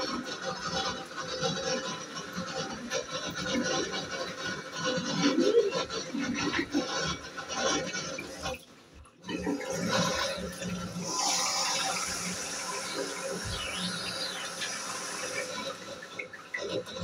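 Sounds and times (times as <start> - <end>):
water rushing: 9.2 - 17.0.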